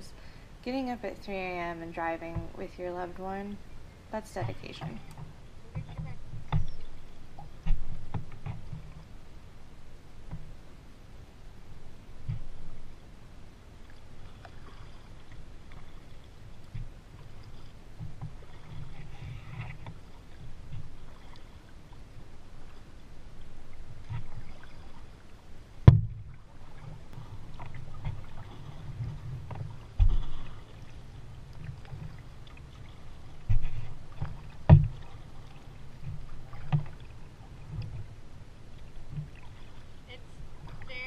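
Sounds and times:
soft water sounds: 0.0 - 41.0
sharp knocks: 25.8 - 26.2, 34.7 - 35.0.

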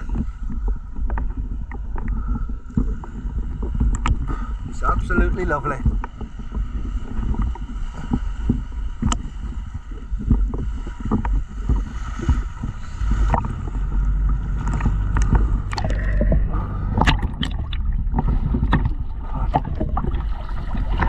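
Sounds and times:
boat engine low rumble: 0.0 - 21.0
small waves slapping: 0.0 - 21.0
water splashing and pouring: 10.4 - 21.0.

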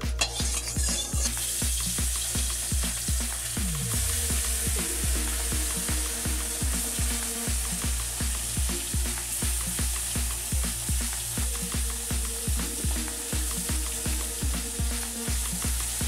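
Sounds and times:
fish sizzling in hot oil: 0.0 - 16.0
music with thumping beat: 0.0 - 16.0
spatula turning food in wok: 0.1 - 3.6.

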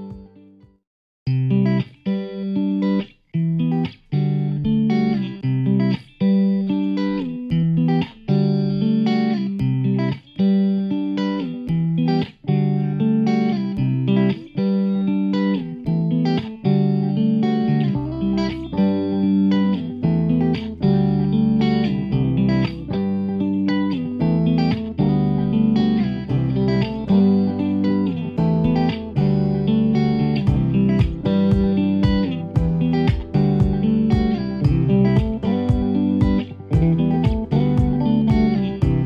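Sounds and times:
plucked guitar melody: 0.0 - 39.0
low bass line: 17.8 - 19.2, 20.0 - 23.4, 24.2 - 39.0.

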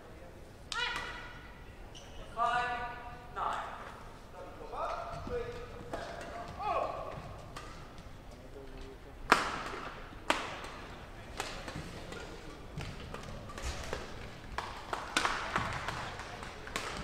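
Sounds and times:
rackets hitting shuttlecock: 5.5 - 8.3, 9.3 - 17.0.

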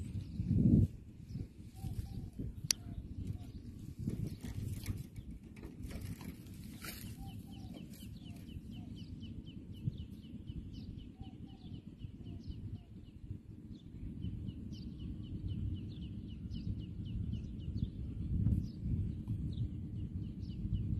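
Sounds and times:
wind rumble on microphone: 0.0 - 20.9
bird calling with clucking notes: 1.7 - 3.7, 5.9 - 9.1.

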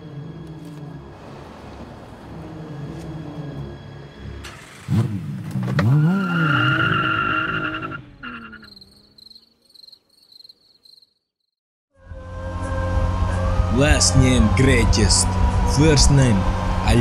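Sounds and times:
car engine revving: 1.1 - 9.3, 12.0 - 17.0.

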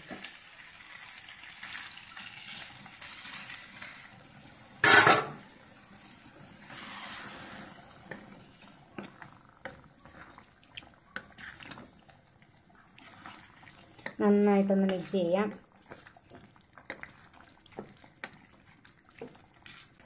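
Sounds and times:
water pouring into a pan: 0.3 - 11.9, 12.9 - 14.3
spatula stirring sloshing gravy: 5.7 - 20.0.

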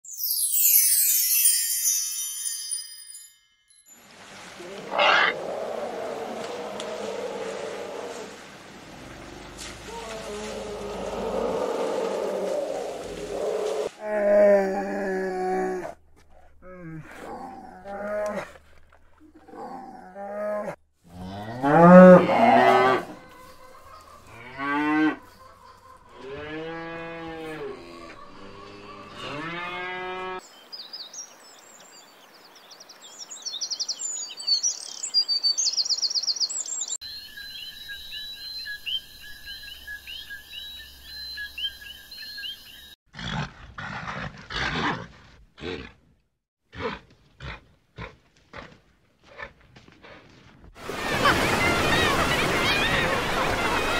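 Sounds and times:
long rising and falling animal calls: 4.6 - 13.9
bird chattering song: 33.2 - 42.9.

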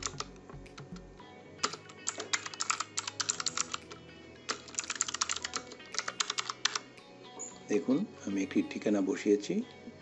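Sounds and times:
typing on computer keyboard: 0.0 - 1.0, 1.6 - 6.8.

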